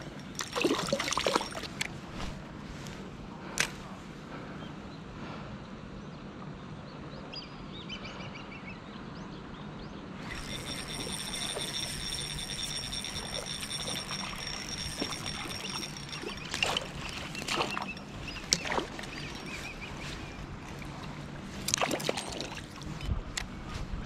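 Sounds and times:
water splashing: 0.0s - 1.8s, 10.4s - 23.1s.

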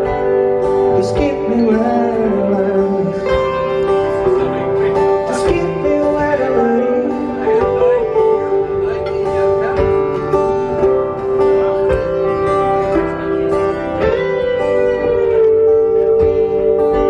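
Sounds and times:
guitar with ringing notes: 0.0s - 17.0s
man singing: 0.8s - 9.6s.

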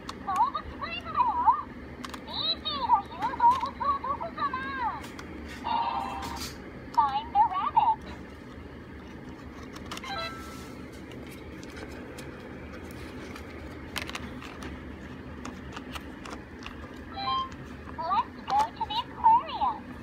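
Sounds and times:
plastic handling noise: 8.2s - 18.8s.

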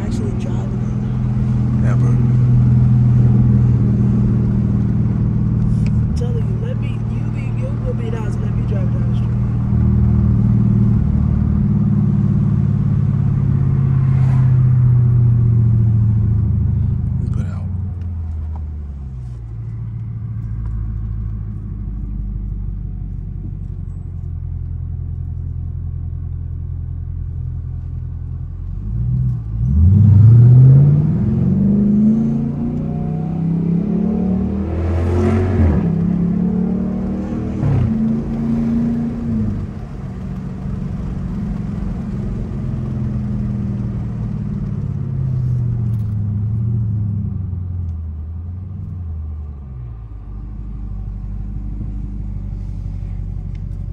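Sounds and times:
engine accelerating hard: 0.0s - 17.7s, 28.9s - 47.8s.

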